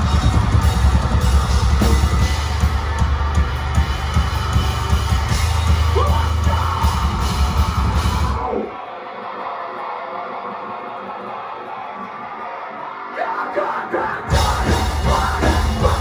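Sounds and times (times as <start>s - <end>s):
metalcore band playing live: 0.0s - 16.0s
yelled vocals: 5.2s - 16.0s.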